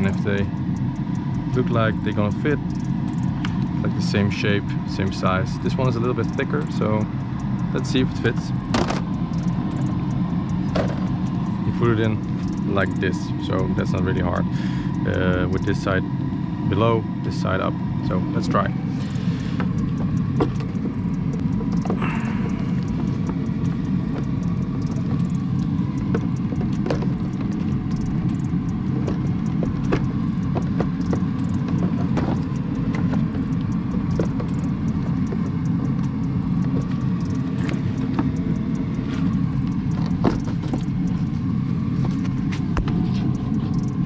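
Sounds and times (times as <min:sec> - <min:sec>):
steady low rumble: 0:00.0 - 0:44.0
plastic clicks and knocks: 0:08.6 - 0:09.1, 0:26.0 - 0:34.7.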